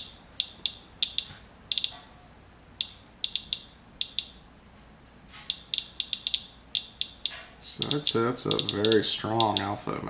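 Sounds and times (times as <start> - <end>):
geiger counter clicking: 0.0 - 2.0, 2.8 - 4.4, 5.5 - 9.8.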